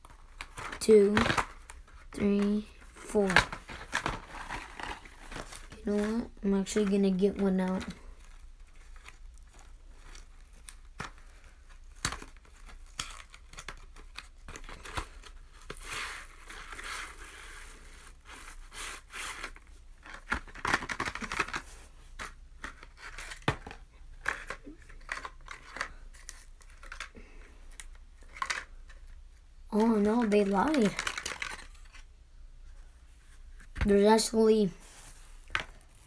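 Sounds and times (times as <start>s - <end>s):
plastic sleeve crinkling and tearing: 3.3s - 6.1s, 7.6s - 29.0s.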